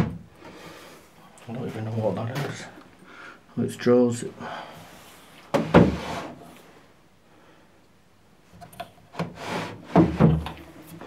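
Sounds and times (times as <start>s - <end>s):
wooden drawer scraping: 5.5s - 6.5s, 9.1s - 11.0s.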